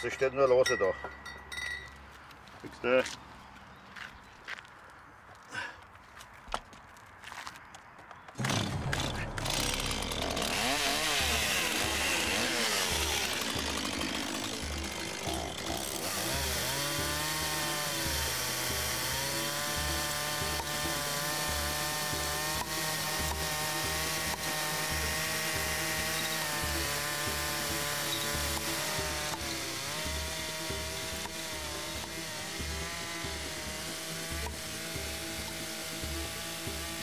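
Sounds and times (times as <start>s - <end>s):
chainsaw revving: 8.4s - 37.0s.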